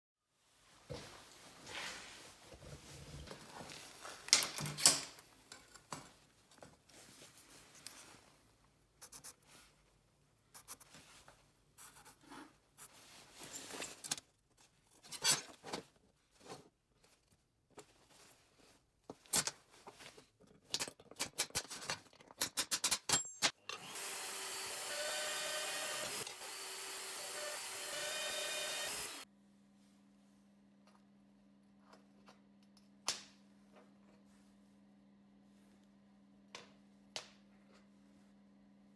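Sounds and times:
tools handled on metal workbench: 4.1 - 6.7, 14.9 - 16.7
power drill boring through steel: 23.7 - 29.2.

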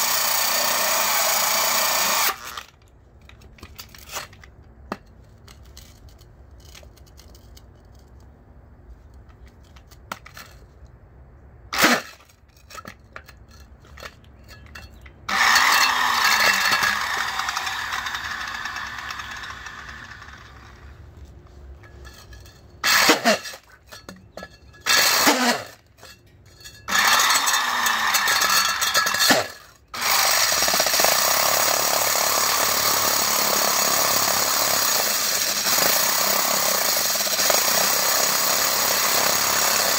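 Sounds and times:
angle grinder core drilling: 0.0 - 2.7, 14.6 - 21.0, 22.0 - 26.1, 26.8 - 39.9.

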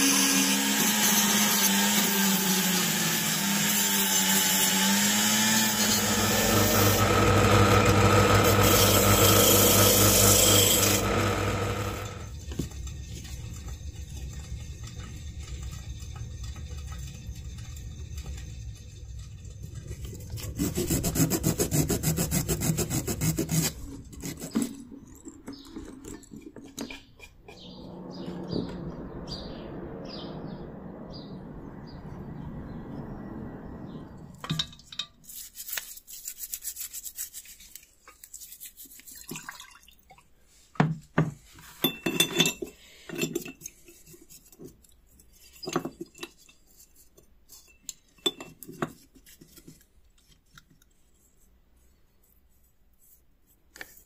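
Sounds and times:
steady low noise: 27.4 - 34.8
sandpaper rubbing on metal: 35.2 - 39.1
brush scrubbing a glass dish: 35.2 - 39.5, 43.4 - 54.0.

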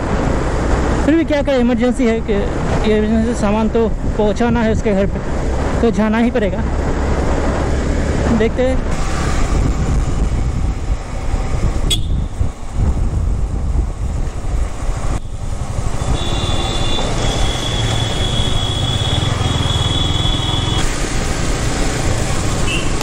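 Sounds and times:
traffic: 0.0 - 23.0
wind rush: 0.0 - 23.0
motorcycle engine running: 15.3 - 20.8.

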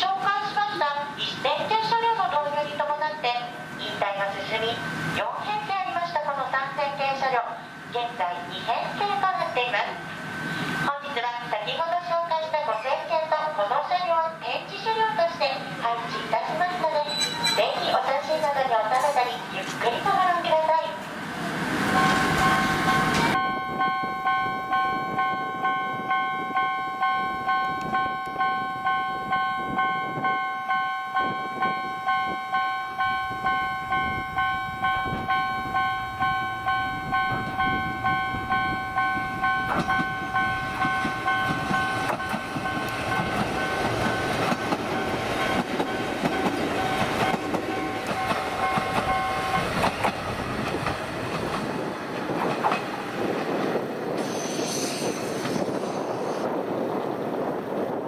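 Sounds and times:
level-crossing warning bell: 0.0 - 20.8, 21.9 - 50.0
train wheels clattering on rails: 21.9 - 23.4, 33.4 - 56.1.

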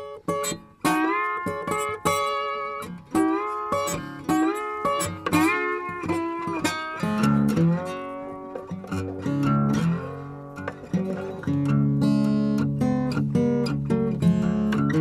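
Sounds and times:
plucked guitar music: 0.0 - 15.0.

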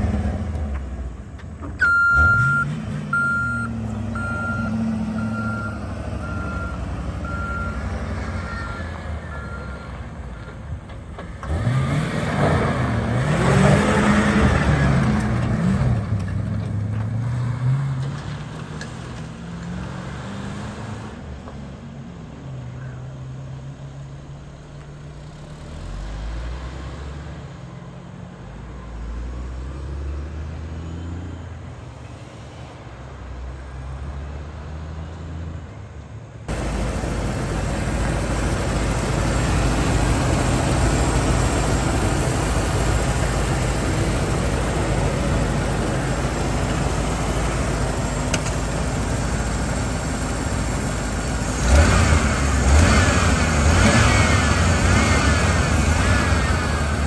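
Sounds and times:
truck engine running steadily: 0.0 - 11.7, 36.5 - 57.0
trucks passing on a road: 0.0 - 57.0.

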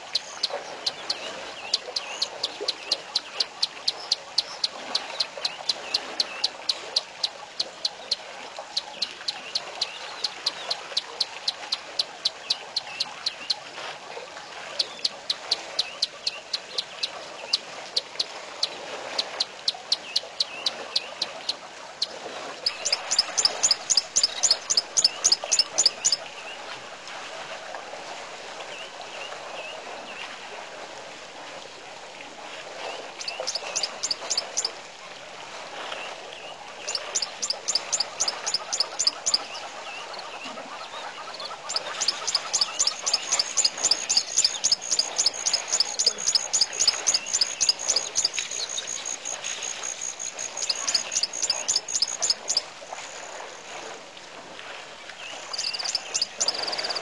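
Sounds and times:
rapid high chirping call: 0.0 - 8.2, 8.8 - 13.6, 14.8 - 17.6, 19.9 - 26.3, 33.2 - 34.7, 36.8 - 40.4, 41.0 - 52.6, 55.5 - 57.0
chorus of birds and insects: 0.0 - 26.8, 32.8 - 34.8, 35.8 - 53.8, 55.1 - 57.0.

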